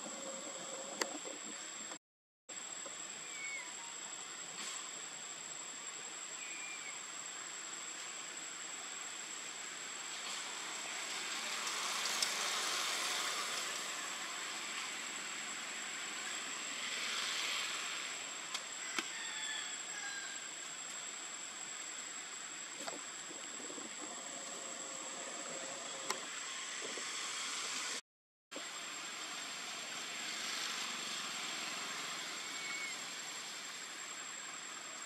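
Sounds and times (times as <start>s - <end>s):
steady hiss: 0.0s - 28.0s, 28.6s - 35.0s.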